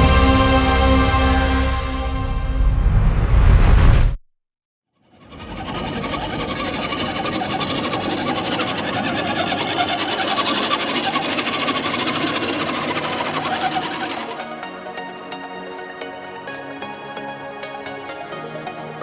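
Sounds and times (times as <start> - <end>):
toy truck electric motor: 5.0 - 14.5.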